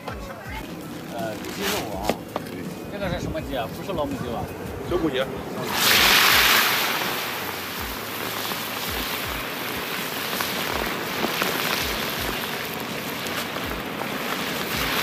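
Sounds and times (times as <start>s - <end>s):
chicken deep-frying in oil: 5.6s - 15.0s.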